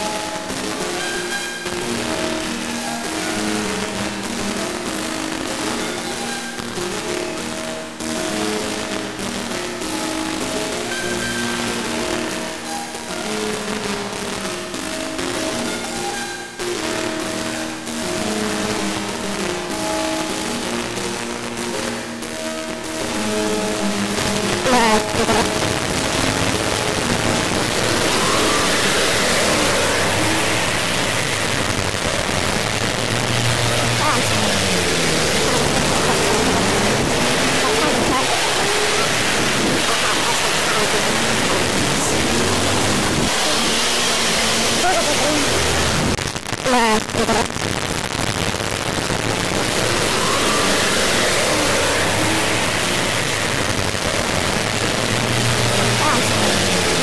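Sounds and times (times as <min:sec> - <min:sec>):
loud static hiss: 0:00.0 - 0:57.0
loud rushing noise: 0:23.3 - 0:57.0
warbling tone: 0:23.7 - 0:47.6.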